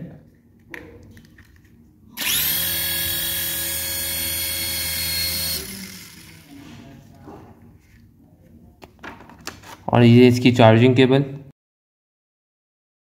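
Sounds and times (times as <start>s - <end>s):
toy helicopter motor whining: 2.2s - 6.6s.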